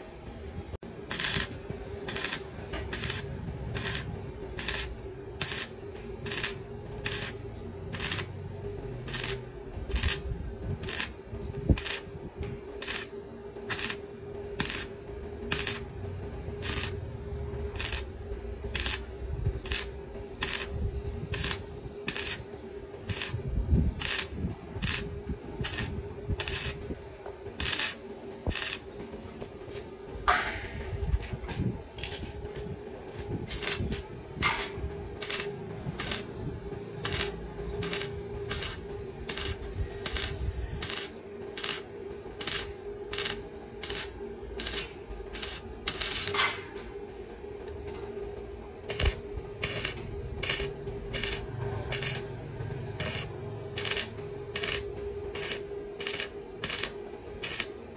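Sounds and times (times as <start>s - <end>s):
steady hum: 0.0s - 57.9s.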